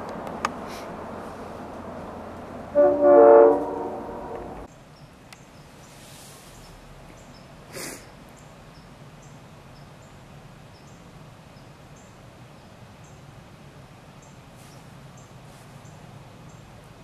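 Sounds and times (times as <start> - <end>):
locomotive horn: 2.6 - 4.7.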